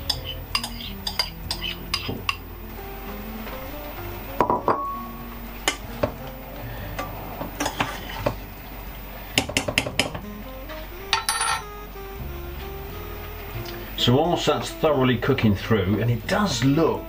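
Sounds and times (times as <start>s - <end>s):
soft background music: 0.0s - 17.0s
metal spoon clinking and scraping: 0.1s - 1.6s.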